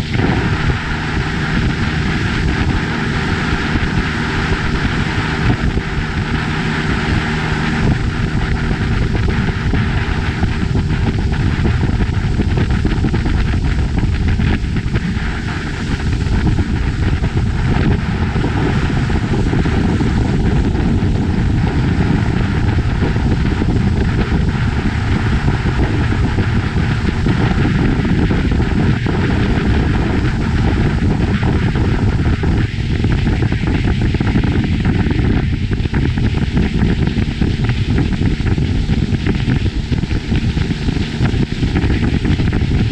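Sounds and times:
motorboat engine drone: 0.0 - 42.9
wind noise on microphone: 0.0 - 42.9.

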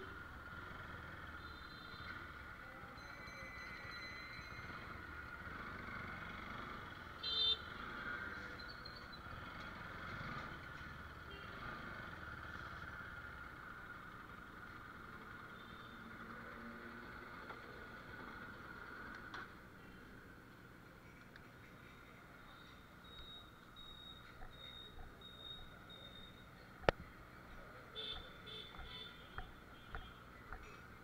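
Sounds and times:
motorcycle running at low speed: 0.0 - 2.7, 4.4 - 19.7
vehicle horn toot: 7.2 - 7.7.

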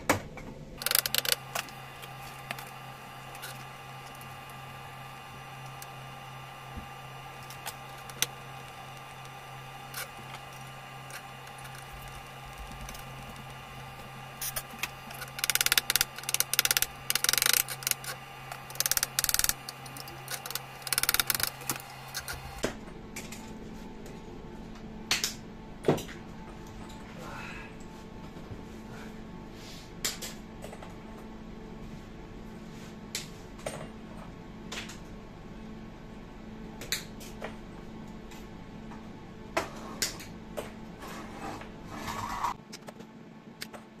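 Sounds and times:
steady low hum: 0.0 - 44.0
scattered clicks: 0.8 - 22.6.

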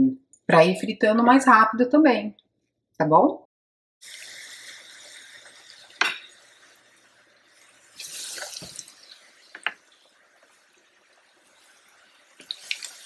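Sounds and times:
food deep-frying in oil: 4.0 - 13.0.

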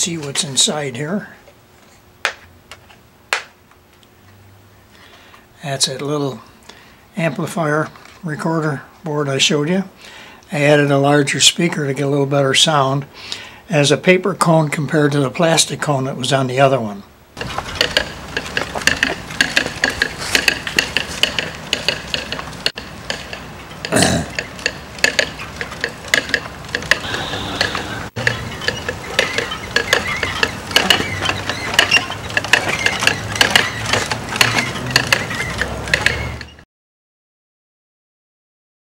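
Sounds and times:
mechanical hoof clopper clacking: 17.4 - 36.6.

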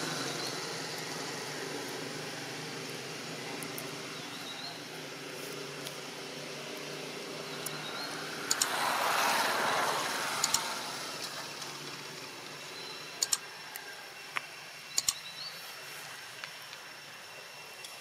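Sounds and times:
sharp double clicks: 8.4 - 8.8, 10.4 - 11.4, 13.2 - 13.8, 14.9 - 15.3.

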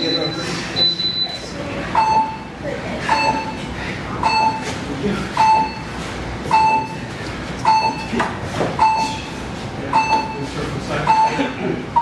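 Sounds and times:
short electronic beeps: 0.0 - 2.5, 3.1 - 3.6, 4.2 - 4.7, 5.4 - 5.9, 6.5 - 7.0, 7.6 - 8.1, 8.8 - 9.3, 9.9 - 12.0.

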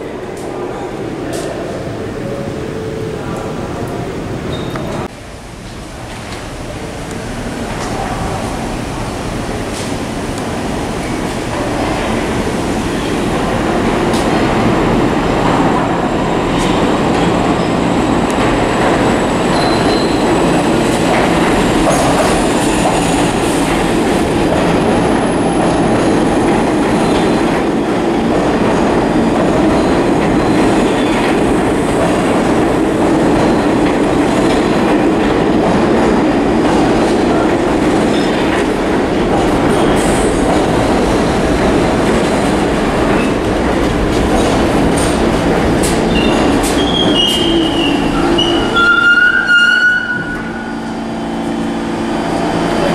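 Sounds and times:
train wheels rumbling on rails: 3.2 - 52.9
high wheel squeal: 19.5 - 20.4, 46.1 - 50.9.

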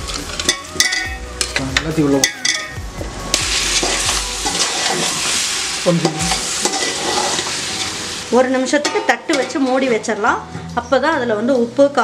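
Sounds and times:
food sizzling in a pot: 0.0 - 10.5
metal clanks of pan and ladle: 0.1 - 2.8, 3.4 - 5.4, 6.0 - 8.0, 8.7 - 10.1.

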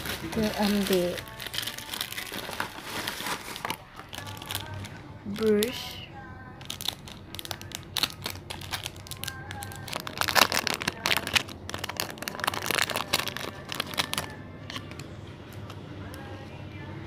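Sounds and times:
plastic packaging crinkling: 0.0 - 6.0, 6.6 - 15.8.

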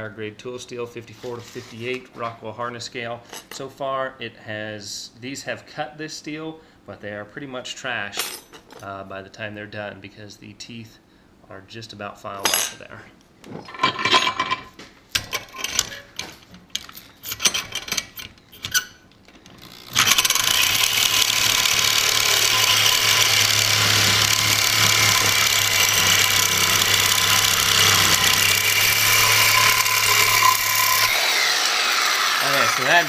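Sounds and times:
reciprocating saw cutting steel: 19.6 - 33.0.

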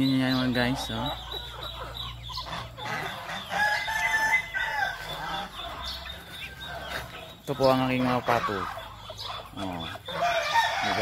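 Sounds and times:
chickens calling: 0.0 - 11.0
rooster crowing: 3.4 - 7.0, 10.1 - 11.0.

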